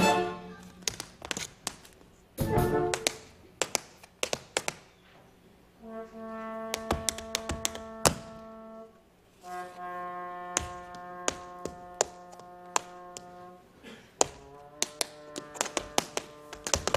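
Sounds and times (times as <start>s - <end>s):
brass chords: 0.0s - 0.6s, 2.4s - 3.0s, 5.8s - 13.8s
tap shoes on stage floor: 0.6s - 5.0s, 6.6s - 8.5s, 10.5s - 13.5s, 14.2s - 16.9s.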